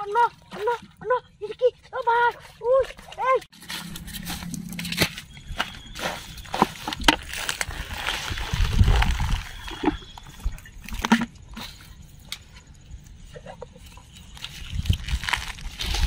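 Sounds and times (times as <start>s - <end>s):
plastic containers handled: 2.8s - 11.4s.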